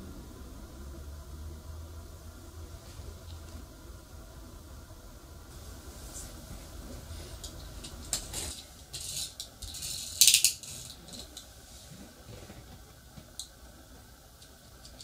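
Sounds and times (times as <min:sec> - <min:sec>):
toy parts clicking and rattling: 0:08.9 - 0:11.4.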